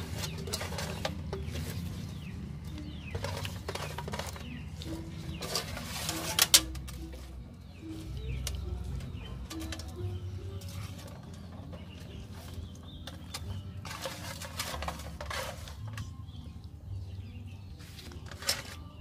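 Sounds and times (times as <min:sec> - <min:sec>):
leaves rustling: 0:03.1 - 0:08.4.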